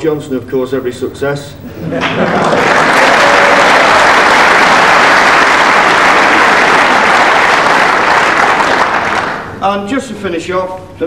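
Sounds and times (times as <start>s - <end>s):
large audience applauding: 2.0s - 9.6s.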